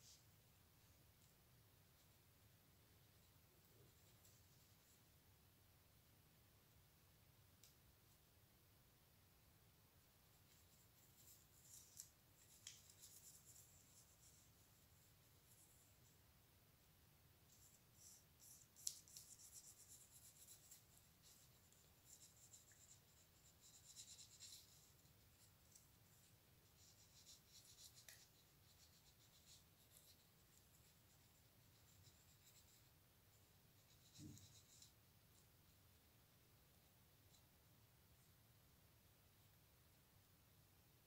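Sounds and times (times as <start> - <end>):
faint scratching: 0.0 - 5.2, 10.0 - 16.3, 17.4 - 37.6.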